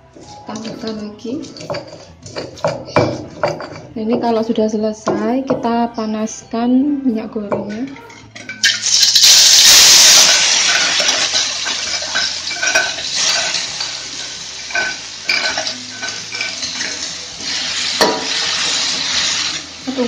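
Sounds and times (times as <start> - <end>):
spice paste sizzling in oil: 8.6 - 20.0
spatula clinking against wok: 10.6 - 17.1.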